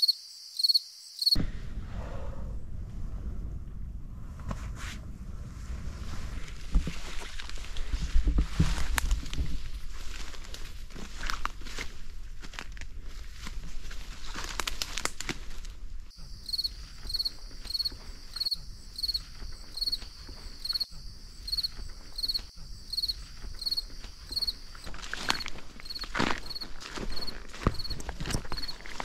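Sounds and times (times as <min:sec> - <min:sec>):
insect chirping: 0:00.0 - 0:01.4, 0:16.1 - 0:29.0
footsteps through undergrowth: 0:06.3 - 0:29.0.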